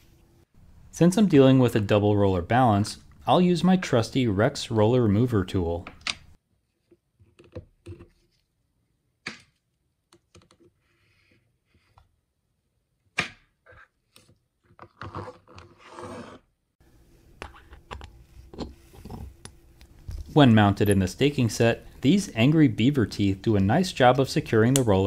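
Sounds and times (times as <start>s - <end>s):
rustling scrape: 15.0s - 16.4s.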